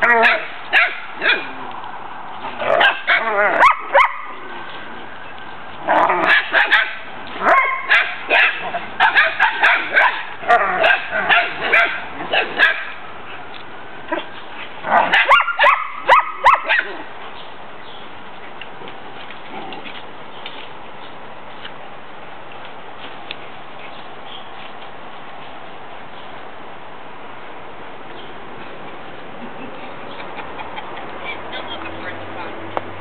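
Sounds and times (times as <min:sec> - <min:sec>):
dogs barking and yipping: 0:00.0 - 0:01.6, 0:02.4 - 0:17.2, 0:29.2 - 0:32.8.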